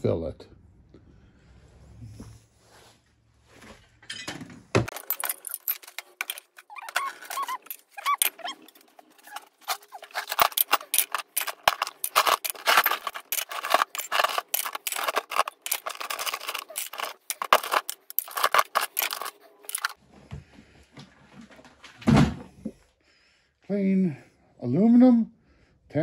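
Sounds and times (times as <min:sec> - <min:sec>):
metal parts clattering into tub: 0:04.0 - 0:20.0.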